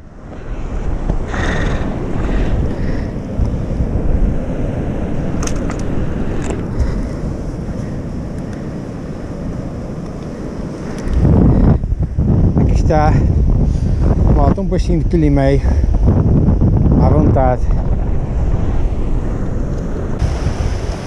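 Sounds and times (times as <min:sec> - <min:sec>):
wind buffeting microphone: 0:00.0 - 0:21.0
surf breaking on rocks: 0:20.1 - 0:21.0.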